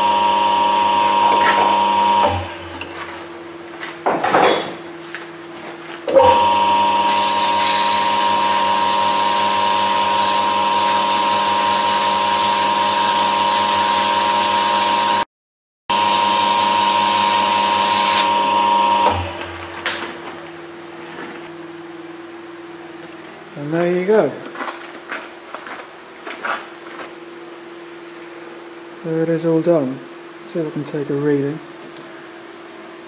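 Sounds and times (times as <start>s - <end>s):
lathe whining: 0.0s - 2.8s, 6.1s - 15.2s, 15.9s - 19.7s
abrasive paper hissing on metal: 7.1s - 15.2s.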